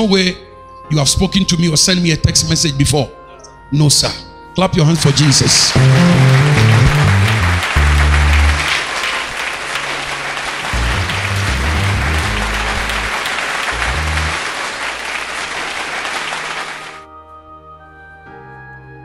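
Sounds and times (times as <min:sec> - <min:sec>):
crowd applauding: 0:05.0 - 0:17.0
music with low bass notes: 0:05.7 - 0:08.7, 0:10.7 - 0:14.5.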